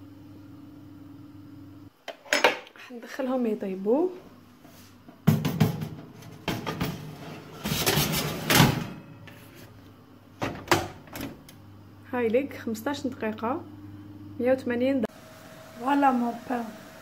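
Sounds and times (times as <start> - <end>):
sharp knocks of tray or door: 5.3 - 6.9
oven door knocks: 5.3 - 7.1
tray scraping on metal rack: 6.6 - 9.1.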